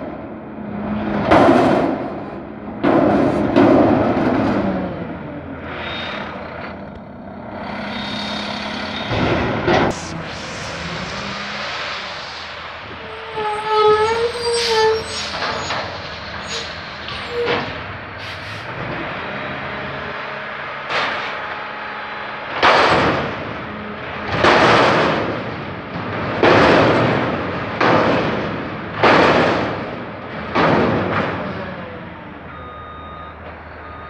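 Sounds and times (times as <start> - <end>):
garbage truck running: 0.0 - 34.0
dumpster being emptied: 1.0 - 5.2, 8.8 - 31.9
brake squeal: 4.3 - 24.9, 31.2 - 34.0.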